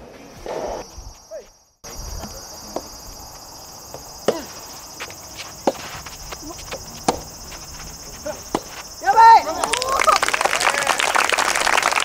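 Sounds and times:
rackets hitting rubber ball: 5.6s - 9.0s.

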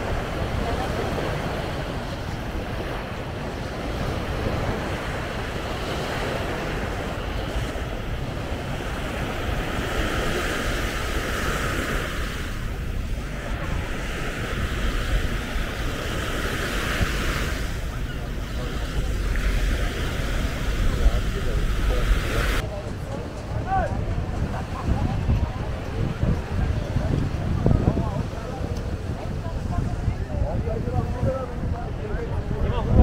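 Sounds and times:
small waves washing onto sand: 0.0s - 33.0s
wind noise on microphone: 0.0s - 33.0s.

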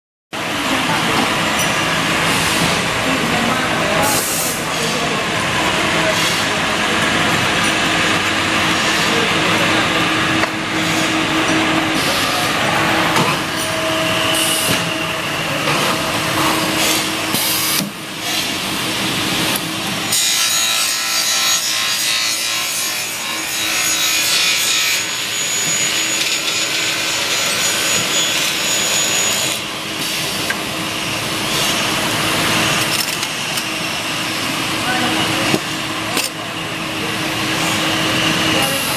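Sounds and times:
saw rasping through metal: 20.0s - 30.4s.

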